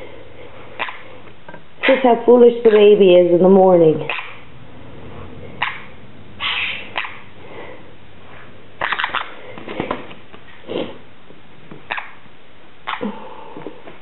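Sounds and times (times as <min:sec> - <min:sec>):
harsh parrot burst: 0:05.5 - 0:07.3, 0:08.8 - 0:09.4.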